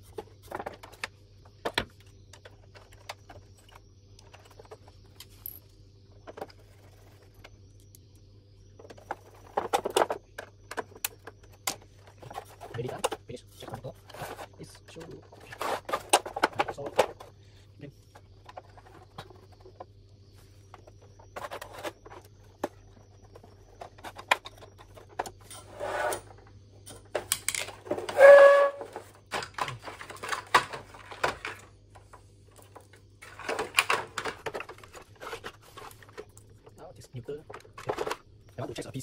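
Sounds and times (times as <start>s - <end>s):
faint low hum: 0.0s - 39.0s
short squeak: 28.1s - 29.0s.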